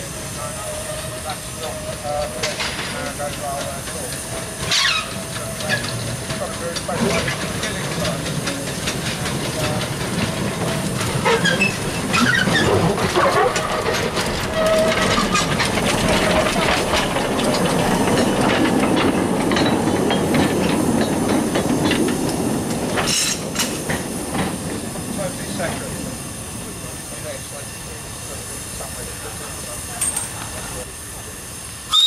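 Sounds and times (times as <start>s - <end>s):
steam hissing: 0.0s - 32.0s
wheels clicking over rail joints: 0.3s - 30.9s.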